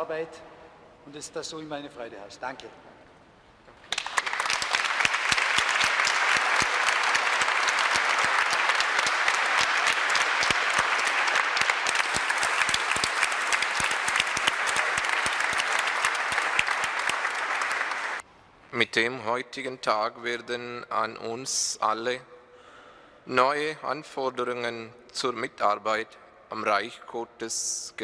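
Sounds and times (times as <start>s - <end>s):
crowd applause: 3.9s - 18.2s.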